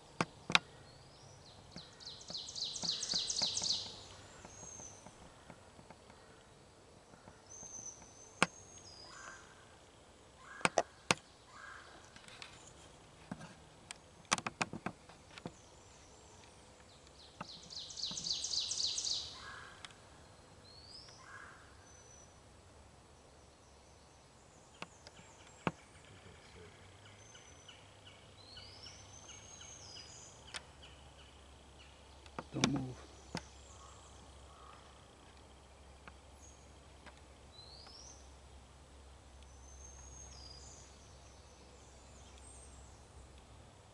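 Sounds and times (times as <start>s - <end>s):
songbirds whistling: 0.1s - 5.2s, 15.4s - 22.4s, 37.5s - 38.3s.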